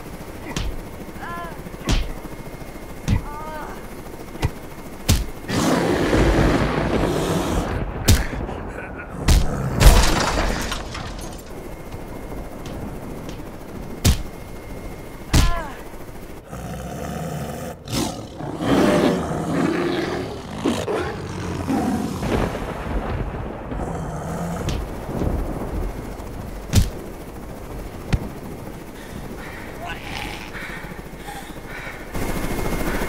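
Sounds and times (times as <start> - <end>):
growling creature roars: 5.5 - 7.9, 9.1 - 9.9, 16.5 - 22.5, 23.7 - 24.9, 29.8 - 30.6.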